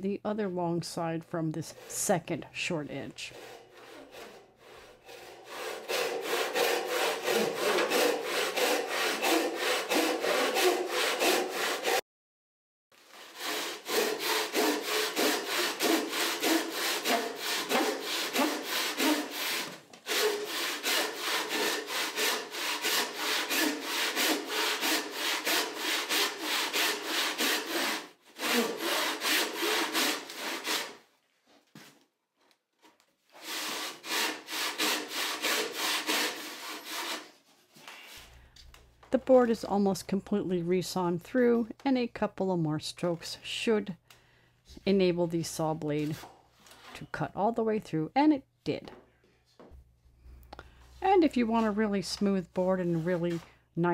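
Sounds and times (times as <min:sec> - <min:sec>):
hand saw cutting wood: 0:01.6 - 0:02.2, 0:03.2 - 0:12.0, 0:13.0 - 0:31.0, 0:33.3 - 0:37.4, 0:51.5 - 0:53.4.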